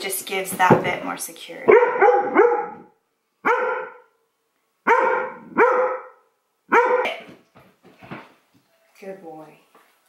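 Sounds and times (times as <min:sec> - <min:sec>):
large dog barking: 0:01.7 - 0:04.1, 0:04.8 - 0:07.2.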